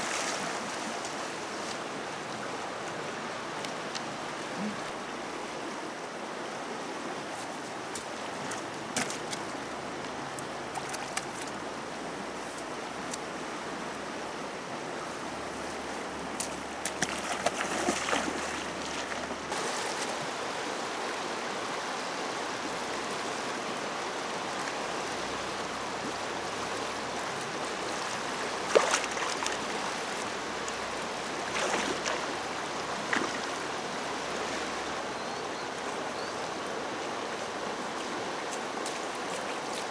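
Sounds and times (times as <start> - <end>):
river rushing: 0.0 - 39.9
pole splashing into water: 16.9 - 19.1, 28.7 - 29.6.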